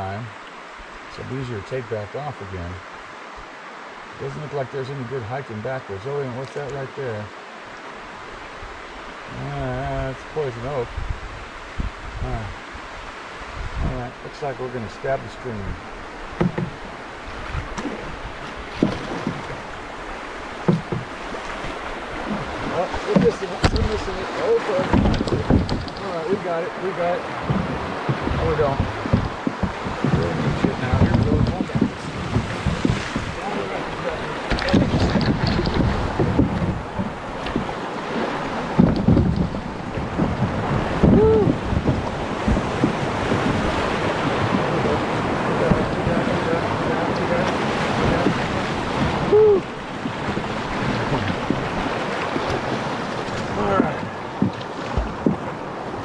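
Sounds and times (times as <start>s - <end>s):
water splashes: 0.0s - 56.0s
river rapids rushing: 6.2s - 56.0s
wind on microphone: 8.3s - 14.3s, 14.9s - 56.0s
canoe hull knocking: 15.7s - 56.0s.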